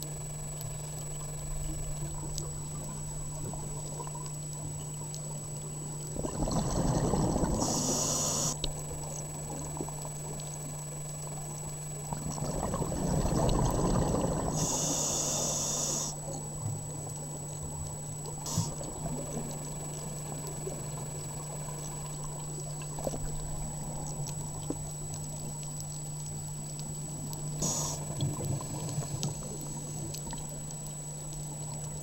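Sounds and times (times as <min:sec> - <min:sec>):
exhaled air bubbling: 0:00.0 - 0:32.0
steady low hum: 0:00.0 - 0:32.0
regulator inhale hiss: 0:07.5 - 0:08.6, 0:14.5 - 0:16.2, 0:18.4 - 0:18.9, 0:27.6 - 0:28.1.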